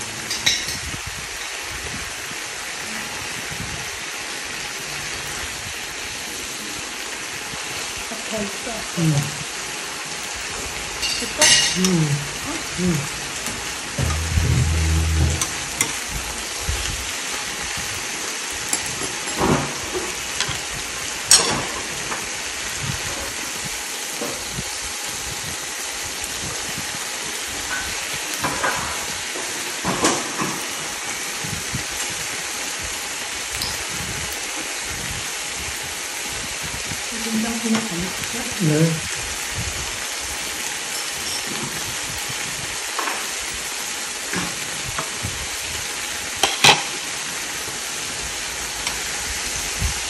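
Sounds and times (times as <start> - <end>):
food sizzling in a frying pan: 0.0 - 50.0
metal utensils clinking on pan: 0.2 - 1.0, 10.0 - 12.0, 18.4 - 20.6, 21.3 - 21.9, 33.5 - 34.6, 40.3 - 42.4, 46.4 - 47.0.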